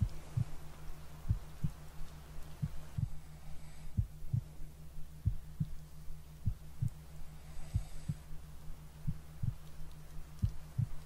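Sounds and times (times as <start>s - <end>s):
heartbeat thumps: 0.0s - 0.6s, 1.2s - 1.8s, 2.6s - 3.2s, 3.9s - 8.3s, 9.0s - 9.7s, 10.4s - 11.0s
low hum: 0.0s - 11.0s.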